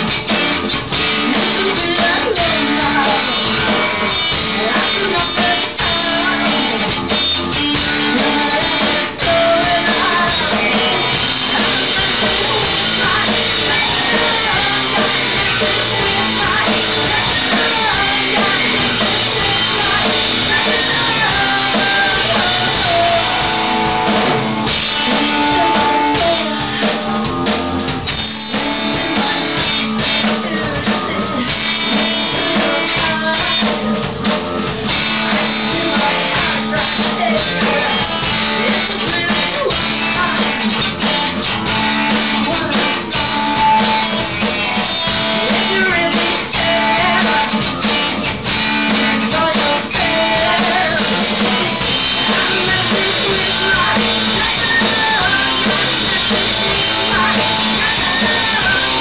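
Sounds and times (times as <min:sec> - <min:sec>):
drum kit: 0:00.0 - 0:59.0
electric bass: 0:00.0 - 0:59.0
electric guitar: 0:00.0 - 0:59.0
person singing into a microphone: 0:00.0 - 0:59.0.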